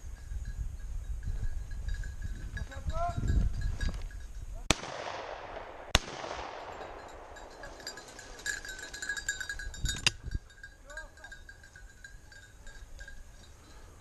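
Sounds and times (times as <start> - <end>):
dog's bell jingling: 0.0 - 4.6, 6.8 - 14.0
shotgun shot echoing: 4.7 - 7.7.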